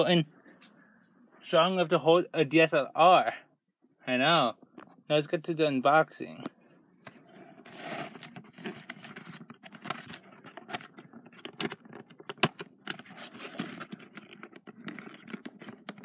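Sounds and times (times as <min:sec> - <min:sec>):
cardboard scraping and rustling: 0:07.1 - 0:16.0.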